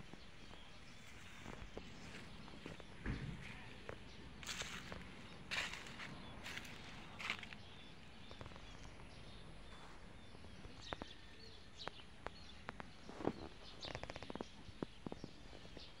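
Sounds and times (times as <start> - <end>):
footsteps on grass: 0.1 - 7.8.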